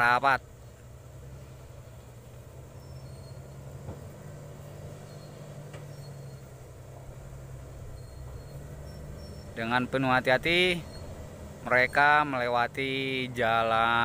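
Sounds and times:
distant truck engine humming: 0:00.0 - 0:14.0.

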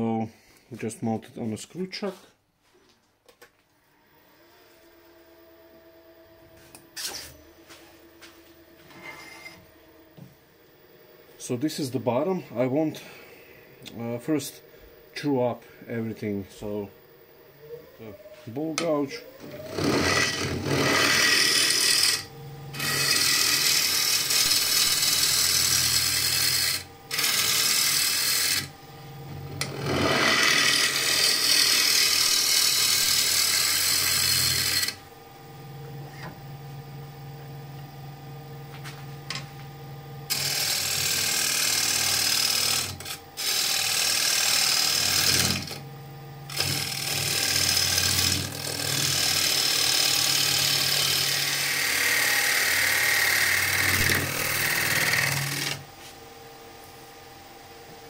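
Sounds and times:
lathe motor hum: 0:15.8 - 0:58.0
gouge cutting wood on a lathe: 0:19.4 - 0:28.7, 0:29.6 - 0:35.0, 0:40.3 - 0:45.8, 0:46.5 - 0:55.8.

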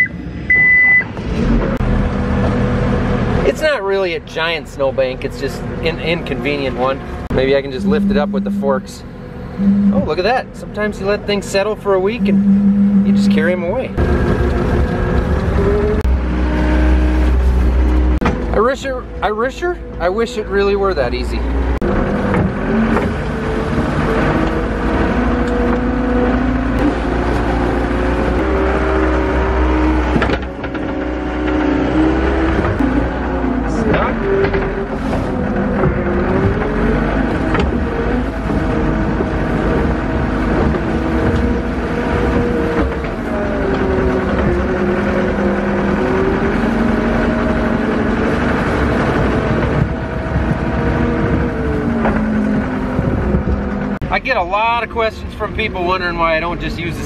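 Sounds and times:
loader engine running: 0:06.0 - 0:11.0, 0:12.1 - 0:54.2
skid loader engine running: 0:07.0 - 0:10.2, 0:12.2 - 0:16.3.

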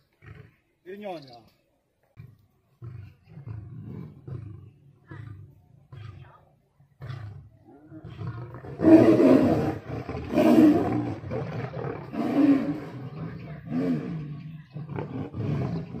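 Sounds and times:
lion snarling roar: 0:07.0 - 0:16.0.

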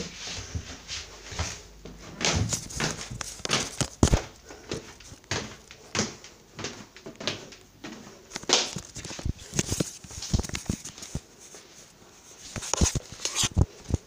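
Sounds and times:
footsteps: 0:00.0 - 0:14.0.

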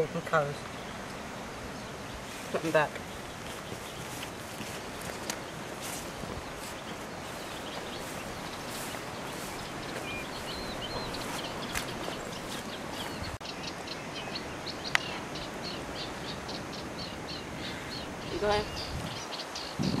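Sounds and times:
small birds chirping: 0:00.0 - 0:20.0
wind noise on microphone: 0:03.1 - 0:13.4, 0:16.3 - 0:20.0.

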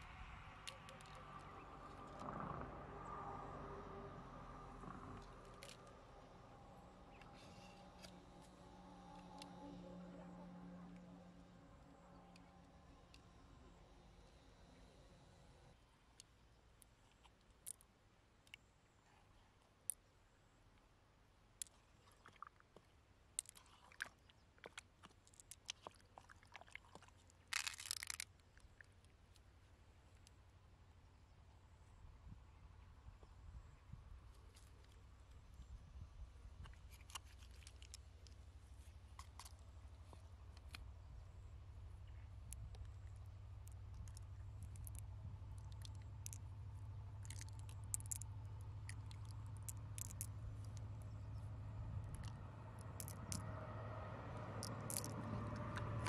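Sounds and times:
steady low hum: 0:00.0 - 0:17.0
pearls clicking together: 0:42.5 - 0:46.5, 0:47.2 - 0:51.0, 0:52.0 - 0:53.5, 0:54.6 - 0:55.9.

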